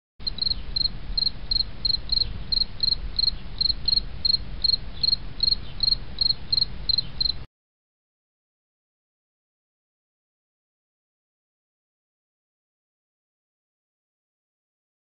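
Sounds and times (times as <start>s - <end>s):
crickets chirping: 0.2s - 7.5s.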